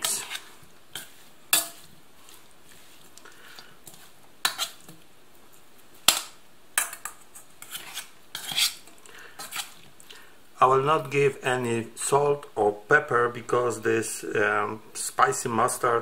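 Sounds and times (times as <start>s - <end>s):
metal spoon scraping steel bowl: 0.0s - 1.9s, 4.4s - 4.8s, 6.8s - 8.8s, 9.4s - 9.8s.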